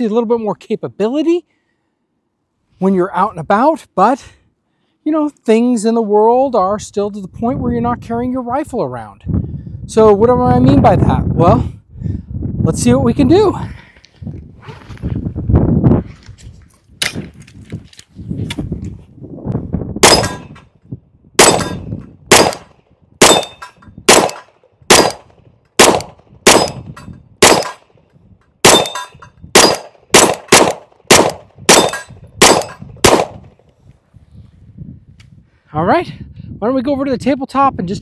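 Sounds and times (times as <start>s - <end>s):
gunshots: 20.0s - 20.6s, 21.4s - 27.9s, 28.6s - 33.5s
steel target ringing: 20.0s - 20.6s, 21.4s - 22.6s, 23.2s - 25.2s, 28.7s - 30.4s, 31.7s - 32.8s.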